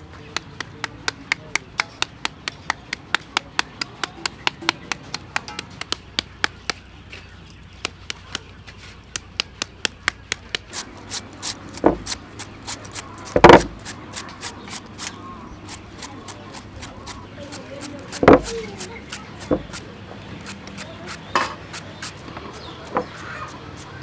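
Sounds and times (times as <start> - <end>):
shredder scraping mango: 10.5 - 24.0
heavy thumps: 11.7 - 12.2, 13.3 - 13.8, 18.2 - 18.6.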